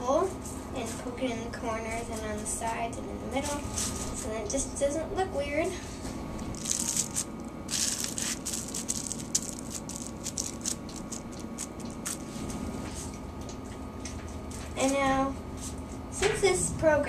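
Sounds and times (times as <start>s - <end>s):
wax paper crinkling: 6.5s - 12.5s.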